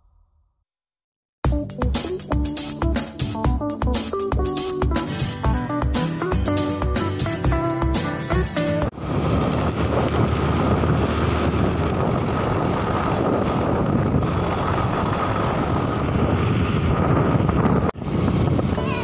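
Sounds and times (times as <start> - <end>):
motorcycle running: 8.6 - 19.0
wind buffeting microphone: 9.0 - 19.0.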